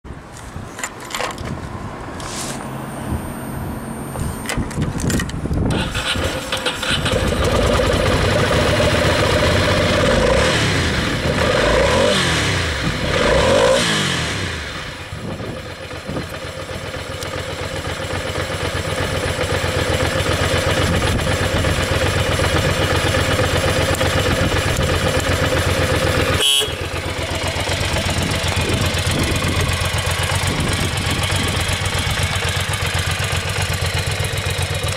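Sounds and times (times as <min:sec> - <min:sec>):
motorcycle engine starting: 0:04.4 - 0:34.9
motorcycle engine idling: 0:06.8 - 0:10.2, 0:14.7 - 0:34.9
motorcycle throttle blips: 0:19.6 - 0:34.9.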